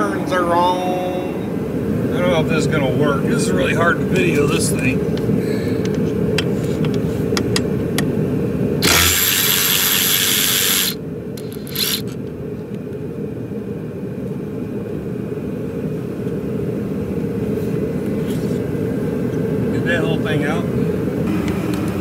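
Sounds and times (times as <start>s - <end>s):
cordless power tool spinning: 8.8s - 12.2s.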